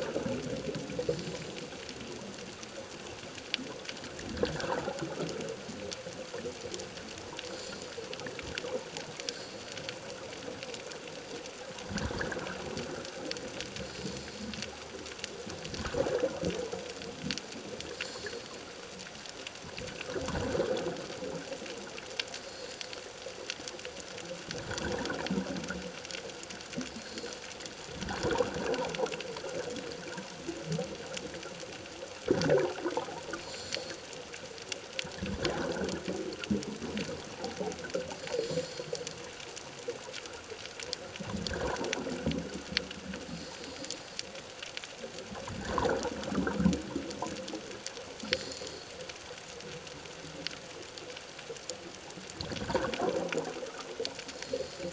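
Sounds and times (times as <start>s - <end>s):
rush of exhaled bubbles: 0.0s - 2.0s, 4.0s - 9.6s, 11.7s - 14.8s, 15.4s - 18.3s, 19.6s - 22.0s, 24.4s - 26.0s, 27.8s - 33.7s, 35.0s - 38.9s, 41.2s - 43.7s, 45.1s - 48.8s, 52.2s - 54.9s
regulator hissing inhale: 9.3s - 10.1s, 13.8s - 14.7s, 18.0s - 18.7s, 22.4s - 23.2s, 33.4s - 34.2s, 38.2s - 39.2s, 43.3s - 44.2s, 48.2s - 49.1s, 54.4s - 54.9s.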